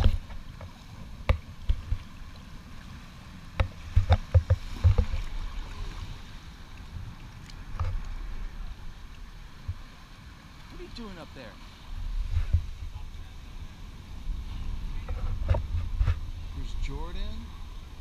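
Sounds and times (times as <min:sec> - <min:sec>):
water splashes and knocks: 0:00.0 - 0:11.5, 0:12.2 - 0:13.0, 0:15.0 - 0:17.0
seawater sloshing and lapping: 0:00.0 - 0:12.8.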